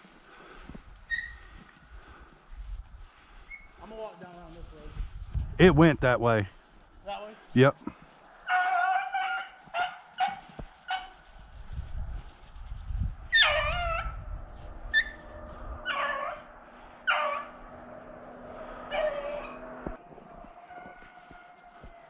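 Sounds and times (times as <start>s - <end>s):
dogs barking: 8.4s - 11.1s, 14.9s - 22.0s
dog baying: 8.5s - 11.1s, 14.9s - 22.0s.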